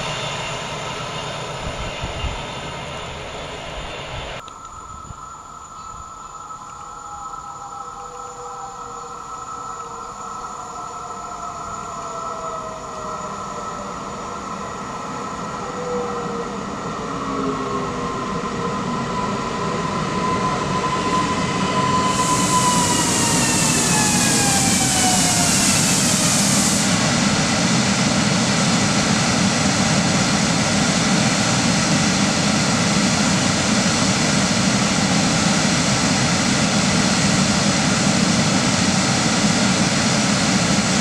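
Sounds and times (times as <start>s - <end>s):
electric train motor whine: 0.0s - 38.8s
wheels hissing on rail: 21.1s - 29.0s.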